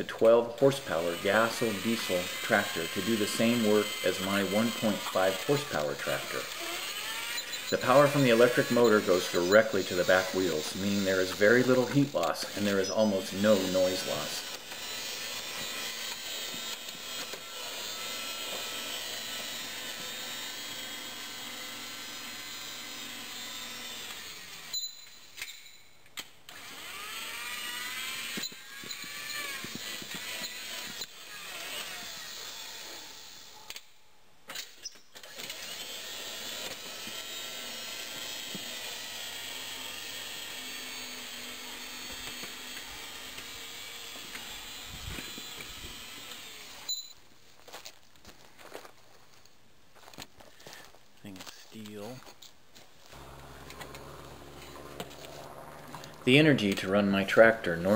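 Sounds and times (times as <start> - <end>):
electric motor whirring: 0.6 - 25.6, 26.5 - 33.6, 35.2 - 47.1, 53.1 - 57.9
whine: 53.1 - 57.7.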